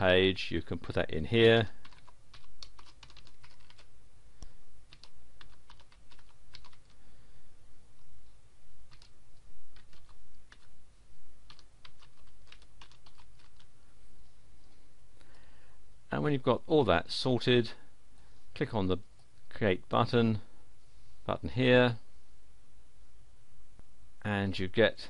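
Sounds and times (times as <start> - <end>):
keyboard typing clicks: 1.8 - 3.9, 4.9 - 7.0.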